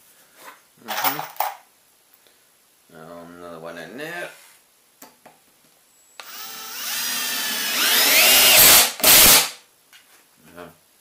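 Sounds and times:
cordless drill driving screw: 0:06.2 - 0:09.6.

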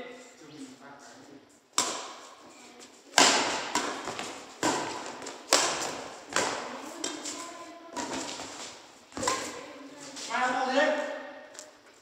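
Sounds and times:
rackets hitting shuttlecock: 0:01.7 - 0:02.5, 0:03.1 - 0:09.7.

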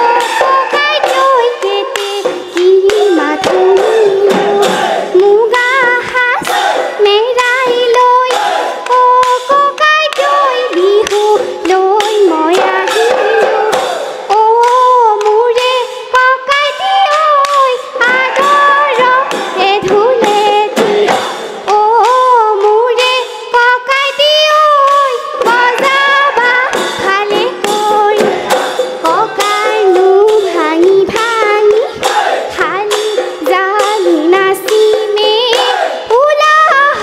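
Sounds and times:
dhol drum beats: 0:00.0 - 0:37.0
hand clapping: 0:00.0 - 0:37.0.

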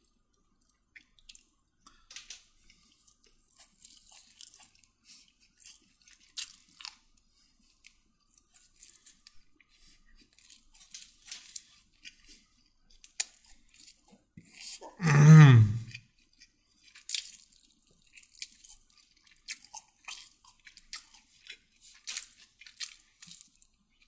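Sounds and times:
person chewing crunchy food: 0:00.1 - 0:24.0.

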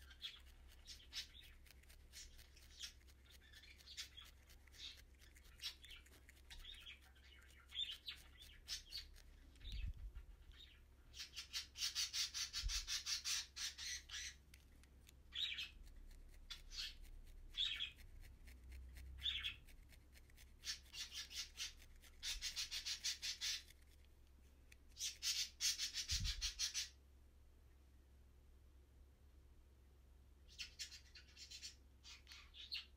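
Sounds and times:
felting needle poking wool: 0:14.4 - 0:25.0.

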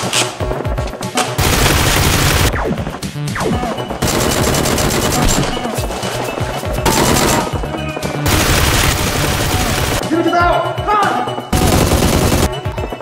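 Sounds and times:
background music: 0:00.0 - 0:13.0
automatic gunfire bursts: 0:01.4 - 0:02.5, 0:04.0 - 0:05.5, 0:06.9 - 0:07.6, 0:08.3 - 0:10.0, 0:11.6 - 0:12.6.

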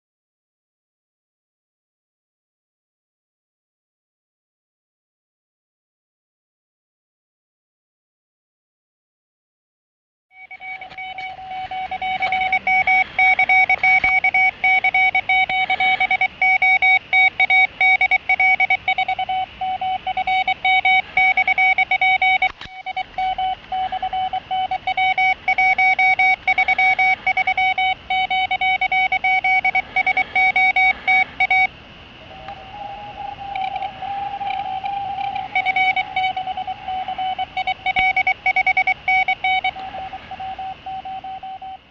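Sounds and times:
morse code tone: 0:10.4 - 0:41.9.

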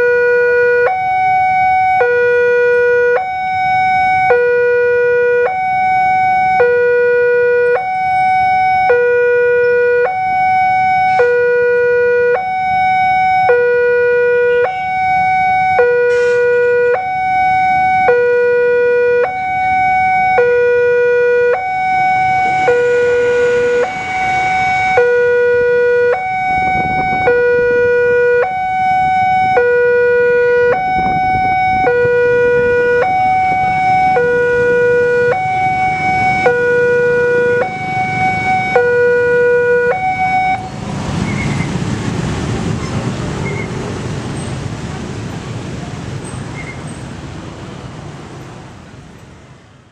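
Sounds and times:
level-crossing two-tone alarm: 0:00.0 - 0:40.8
rail car rumbling past: 0:21.9 - 0:25.6, 0:40.5 - 0:49.9.

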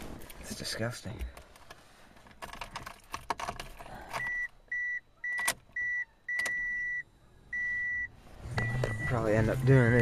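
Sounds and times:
car warning chime beeping: 0:04.2 - 0:10.0.

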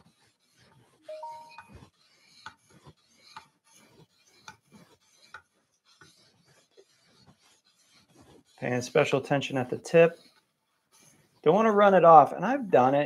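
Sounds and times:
short rising chime: 0:01.1 - 0:01.7.

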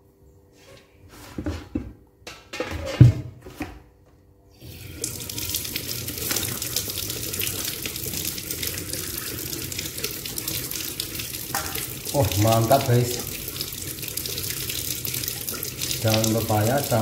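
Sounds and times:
water streaming and splashing: 0:04.7 - 0:17.0.

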